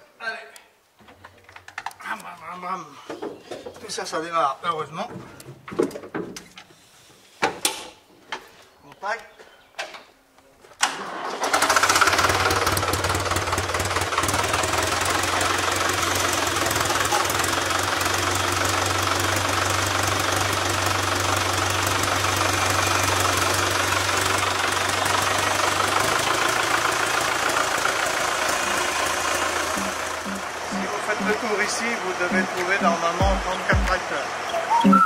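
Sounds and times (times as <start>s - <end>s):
tractor engine idling: 11.0s - 35.0s.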